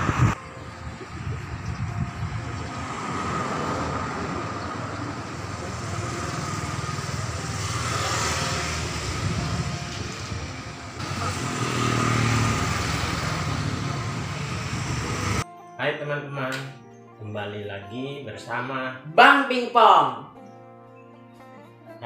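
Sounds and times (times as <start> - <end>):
vehicles passing by: 0.0 - 15.4.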